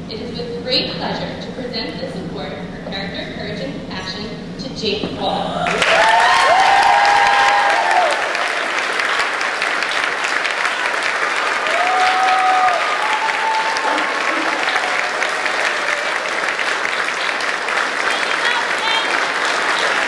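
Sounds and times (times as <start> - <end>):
people cheering: 5.4 - 20.0
audience applauding: 5.6 - 20.0.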